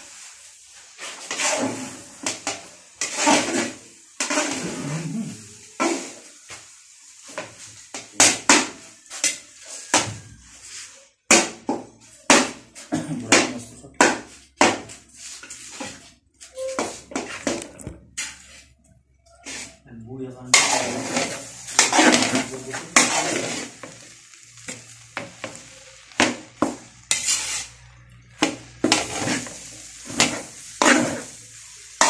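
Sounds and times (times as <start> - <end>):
metal spatula clanking in wok: 20.5 - 23.6.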